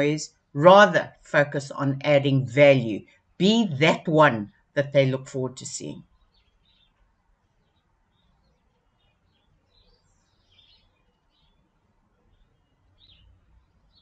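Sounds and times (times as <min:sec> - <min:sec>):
faint bird chirps: 0:06.0 - 0:14.0.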